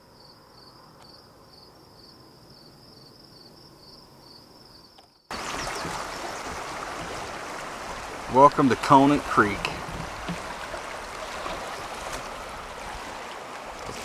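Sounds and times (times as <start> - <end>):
crickets chirping: 0.0 - 8.1
creek water rushing: 5.3 - 14.0.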